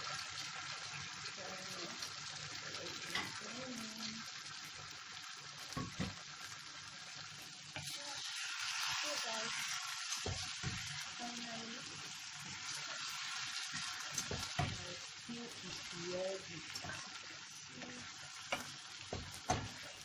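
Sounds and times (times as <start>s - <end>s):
stew sizzling in a pan: 0.0s - 20.0s
spoon stirring and scraping: 1.9s - 4.8s, 5.6s - 6.6s, 7.4s - 8.5s, 9.1s - 11.2s, 12.0s - 20.0s
spoon knocking against pan: 5.7s - 6.2s, 10.2s - 10.9s, 13.7s - 14.8s, 18.5s - 19.8s.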